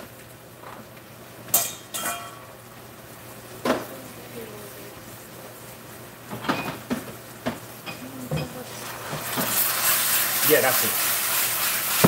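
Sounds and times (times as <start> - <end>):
metal cookware knocking: 1.6 - 2.4.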